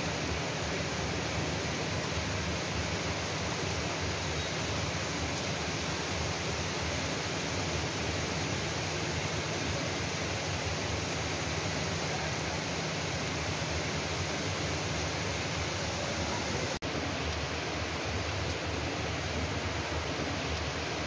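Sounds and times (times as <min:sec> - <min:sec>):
steady rain falling: 0:00.0 - 0:21.0.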